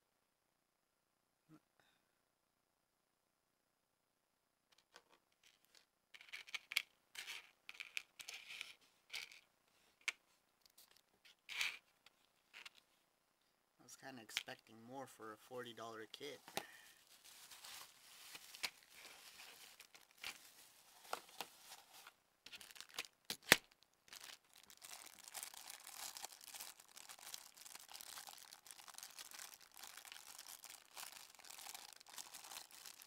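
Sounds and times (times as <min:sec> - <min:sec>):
plastic bag crinkling: 0:16.4 - 0:33.0.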